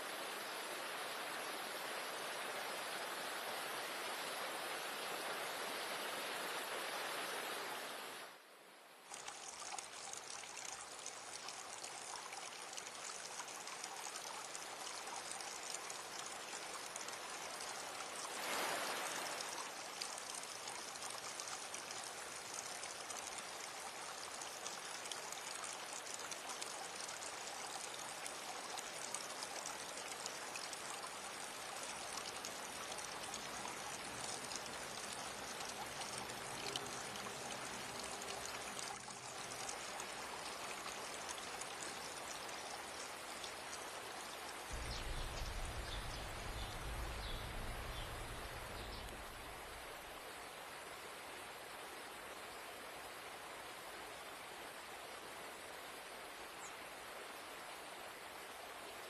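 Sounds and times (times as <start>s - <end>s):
waterfall rushing over rocks: 44.7s - 50.0s.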